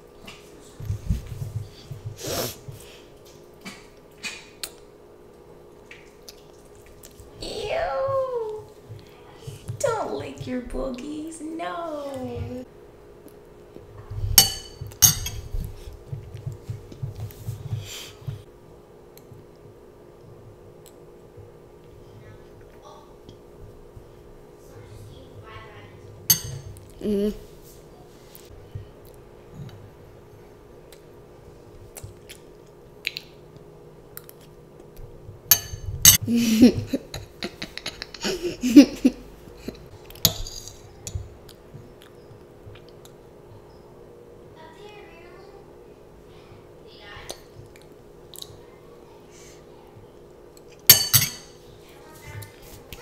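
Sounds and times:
steady low hum: 0.0 - 53.0
child eating: 5.7 - 7.4, 30.7 - 35.1, 36.1 - 43.3
child giggling: 36.2 - 39.8
spoon clinking on ceramic bowl: 50.9 - 51.5.

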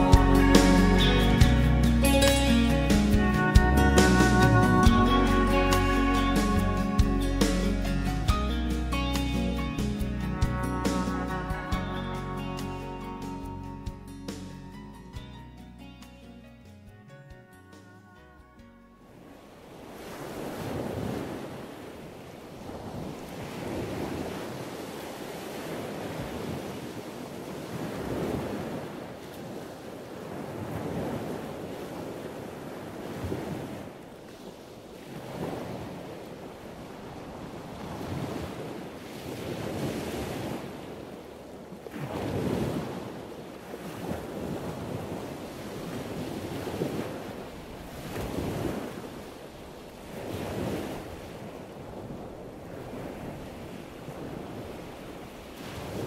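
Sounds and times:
waves breaking on beach: 0.0 - 10.3, 19.1 - 56.0
wind on microphone: 19.1 - 56.0.

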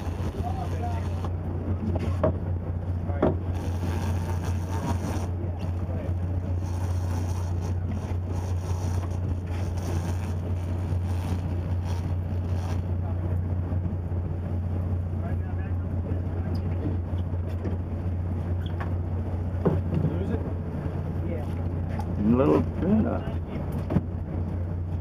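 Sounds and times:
boat engine humming: 0.0 - 25.0.

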